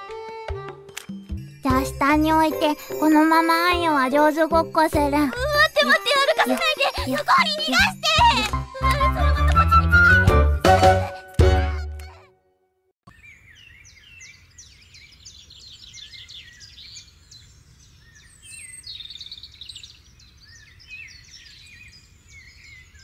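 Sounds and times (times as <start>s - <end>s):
birds chirping and twittering: 13.1s - 23.0s.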